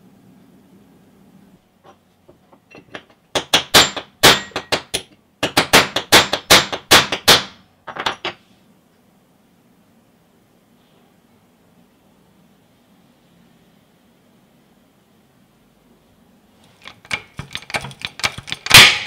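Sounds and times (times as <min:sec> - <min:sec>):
hammer striking metal: 0:03.4 - 0:08.2, 0:17.1 - 0:19.0.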